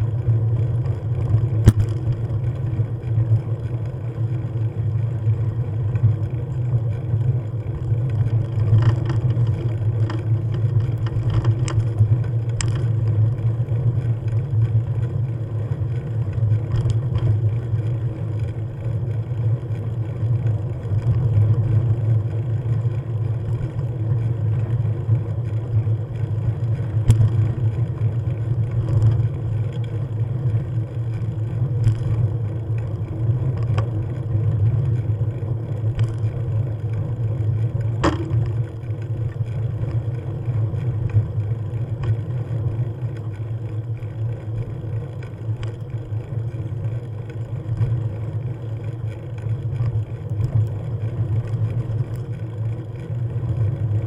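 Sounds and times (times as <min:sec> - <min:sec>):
vehicle engine droning: 0:00.0 - 0:54.0.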